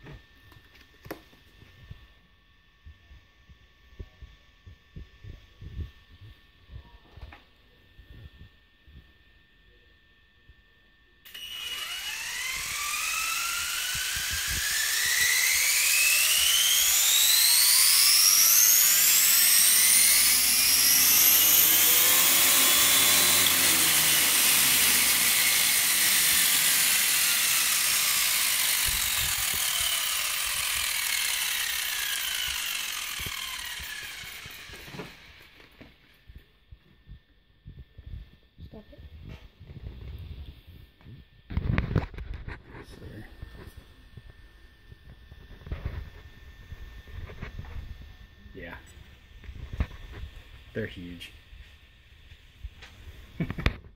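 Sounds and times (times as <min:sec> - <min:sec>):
electric motor and gears whining: 0:11.2 - 0:53.9.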